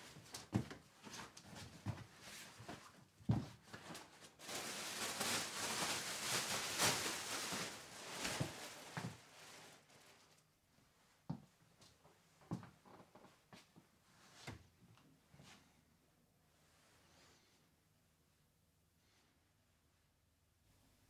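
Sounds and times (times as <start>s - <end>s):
cloth rustling: 3.6s - 10.3s.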